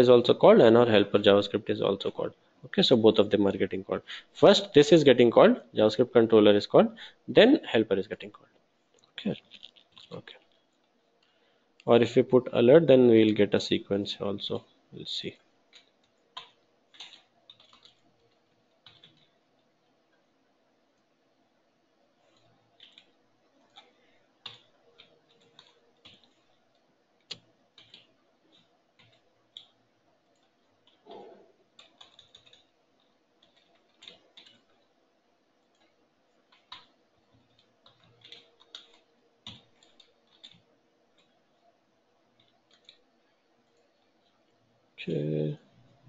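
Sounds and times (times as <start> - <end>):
computer keyboard typing: 9.2 - 10.6, 15.2 - 19.9, 22.2 - 35.0, 35.6 - 41.6, 42.3 - 44.5.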